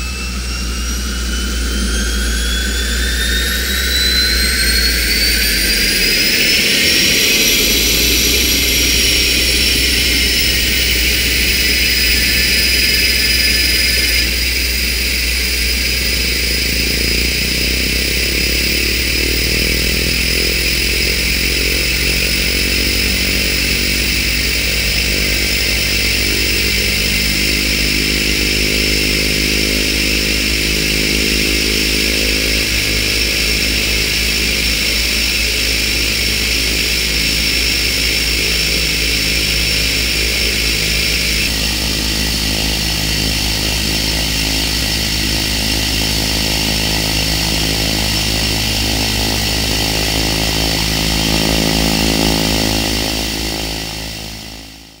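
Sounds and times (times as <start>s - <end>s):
propeller drone: 0.0s - 55.0s
turbine whine: 0.0s - 55.0s.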